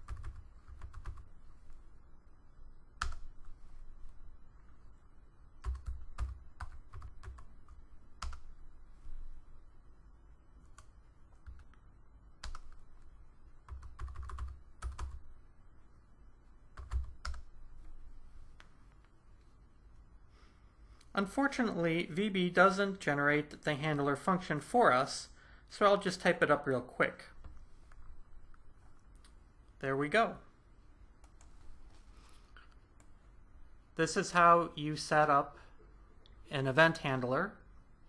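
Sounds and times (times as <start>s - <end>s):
typing on computer keyboard: 0.0s - 1.3s, 5.6s - 8.5s, 12.4s - 12.8s, 13.6s - 15.2s, 16.8s - 17.5s.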